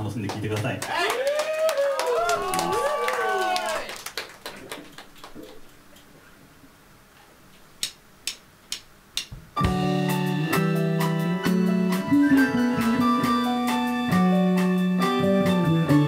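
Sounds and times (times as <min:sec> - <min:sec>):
live rock band playing: 0:09.6 - 0:16.0.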